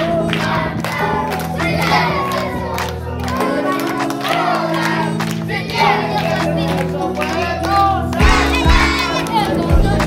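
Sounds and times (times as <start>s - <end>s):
children singing and shouting: 0.0s - 10.0s
children clapping: 0.2s - 10.0s
instrumental music with held chords: 2.6s - 10.0s.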